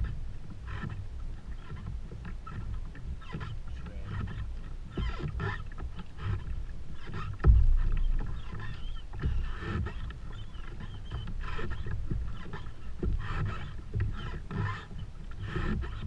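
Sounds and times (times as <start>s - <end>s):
water slapping against hull: 0.0s - 16.0s
knocks on kayak: 7.3s - 8.3s.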